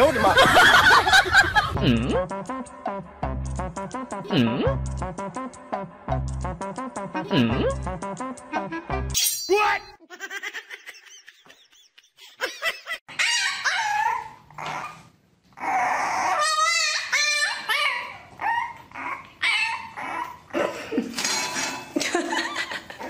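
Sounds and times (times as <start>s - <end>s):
dog whining and yipping: 13.1s - 20.5s.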